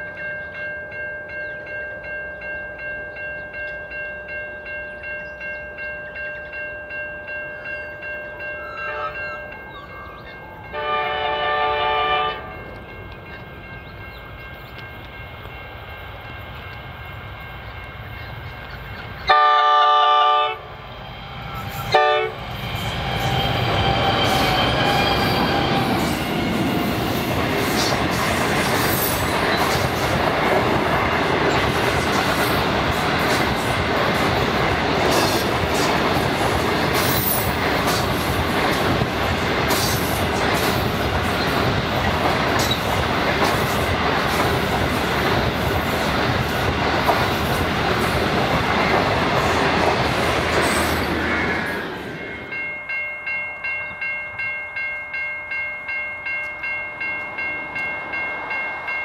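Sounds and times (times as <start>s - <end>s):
train wheels clicking and rumbling: 9.2s - 19.4s, 20.6s - 52.9s.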